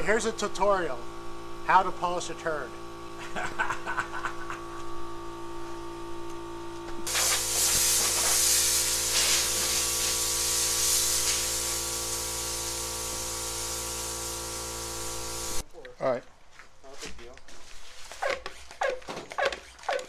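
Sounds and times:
compressed air hissing: 7.1 - 15.6.

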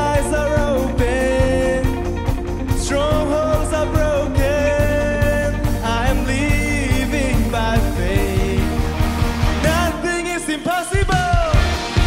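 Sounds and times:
person singing: 0.0 - 9.0, 9.6 - 12.0
band playing upbeat song: 0.0 - 12.0
bass: 0.0 - 12.0
drums: 0.0 - 12.0.

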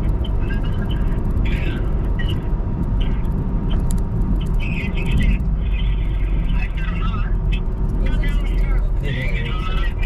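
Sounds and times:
road and engine rumble in car: 0.0 - 10.0.

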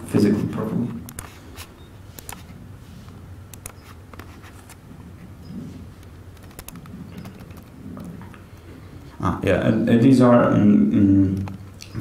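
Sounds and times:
steady low hum: 0.0 - 12.0
laptop keyboard and touchpad clicks: 3.5 - 4.8, 6.4 - 7.8.

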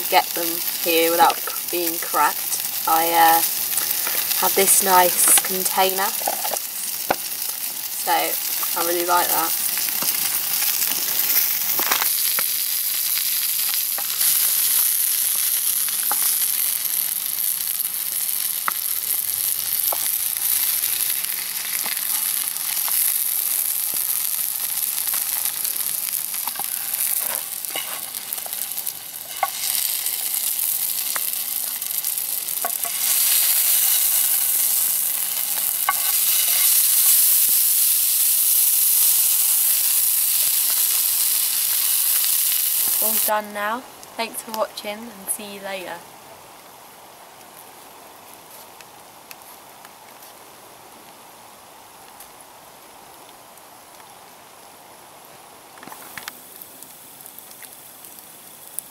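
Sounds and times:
food sizzling in a pan: 0.0 - 46.0
small pops and ticks: 3.4 - 4.4, 6.5 - 7.7, 9.7 - 37.3, 55.8 - 58.9.

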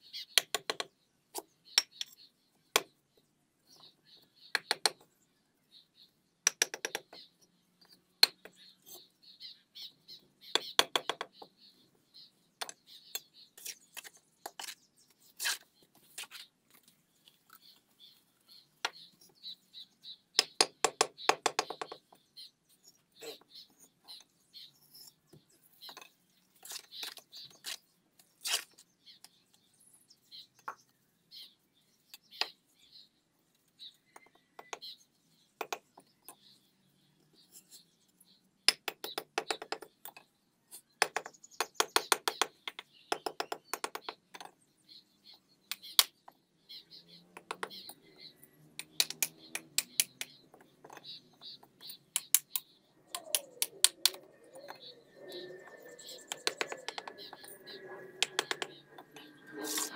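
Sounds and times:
hammer tapping bricks: 0.4 - 0.9, 4.5 - 5.0, 6.5 - 7.2, 10.6 - 11.4, 20.4 - 22.1, 35.6 - 36.1, 38.7 - 40.2, 41.0 - 44.6, 47.3 - 48.0, 48.8 - 54.2, 56.2 - 57.5, 58.2 - 58.8
faint bird chirps: 17.2 - 59.9
hammer tapping brick: 38.7 - 39.9, 41.0 - 44.5, 47.4 - 47.7, 48.8 - 51.0, 56.3 - 57.1, 58.2 - 58.7.

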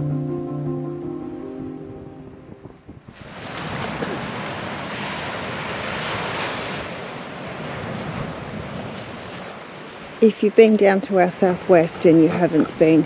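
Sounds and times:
wind: 0.0 - 13.0
surf: 3.1 - 13.0.

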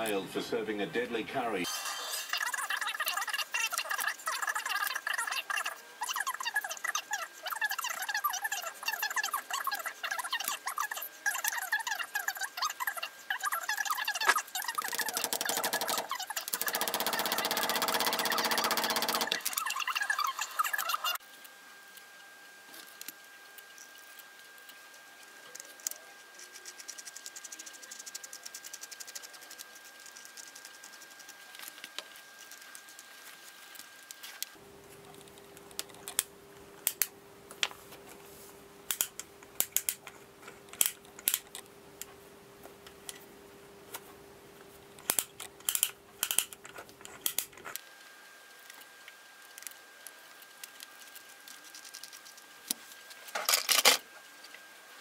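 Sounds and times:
faint steady hum: 0.0 - 55.0
small steel parts clicking: 40.7 - 41.6, 45.0 - 47.6.

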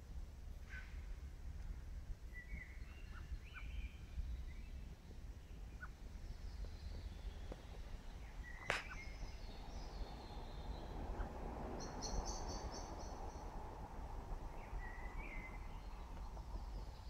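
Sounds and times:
steady low rumble: 0.0 - 17.0
birds chirping and trilling: 2.3 - 17.0
sharp click: 8.6 - 9.0.

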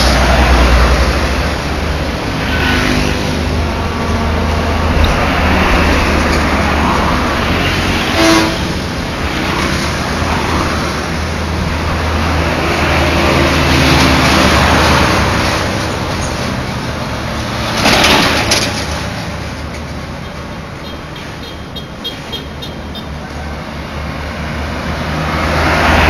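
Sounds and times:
loud rushes of noise: 0.0 - 19.7, 24.0 - 26.0
road traffic passing: 0.0 - 26.0
car horn toot: 8.1 - 8.7.

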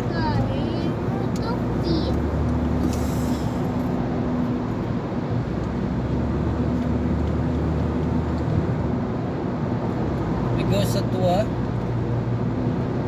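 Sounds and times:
car cabin road and engine noise: 0.0 - 13.0.

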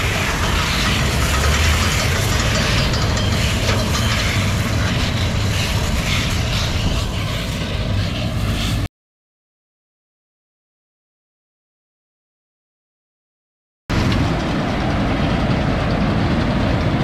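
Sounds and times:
baler machine running: 0.0 - 8.9
tractor engine: 0.0 - 8.9.

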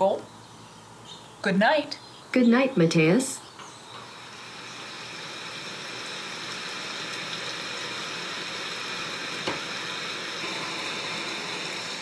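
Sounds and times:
running water hiss: 3.9 - 12.0.

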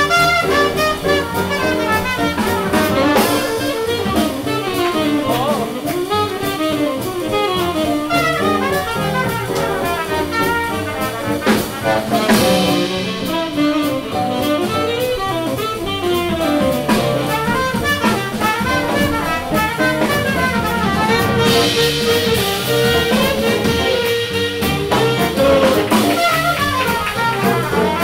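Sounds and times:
swing jazz band playing: 0.0 - 28.0
cymbal crashes: 12.3 - 14.2.

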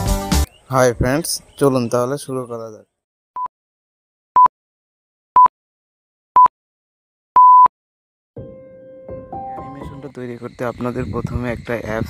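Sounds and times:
music: 0.0 - 0.5, 8.4 - 11.1.

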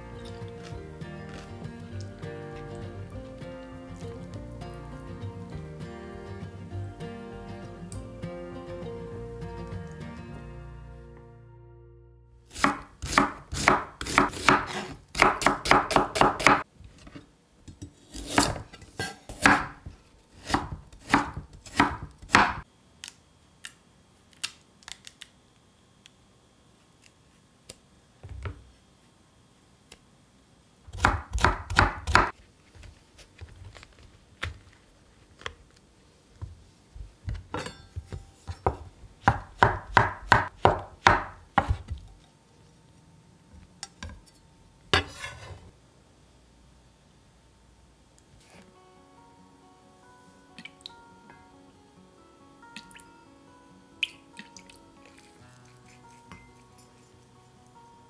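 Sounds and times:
knife chopping on wooden board: 12.5 - 16.6, 18.2 - 19.8, 20.5 - 22.6, 30.9 - 32.3, 37.6 - 42.0.

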